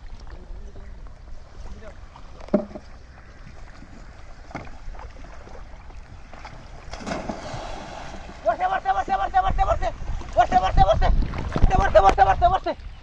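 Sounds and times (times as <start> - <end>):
knocks on wooden boat: 2.4 - 2.9
wind rumble on microphone: 5.8 - 13.0.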